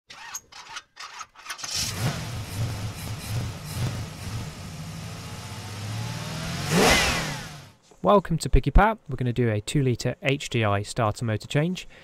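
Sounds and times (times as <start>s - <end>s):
car engine starting and idling: 1.6s - 7.7s.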